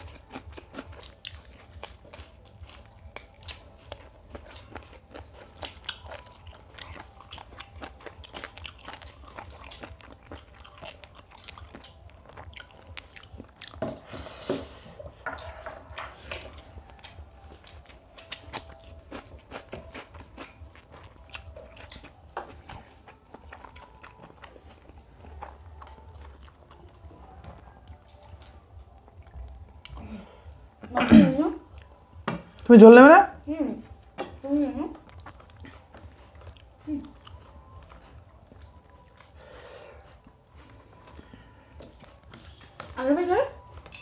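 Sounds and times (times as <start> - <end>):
chewing and crunching: 0.0 - 31.0, 31.6 - 32.9, 33.8 - 44.0.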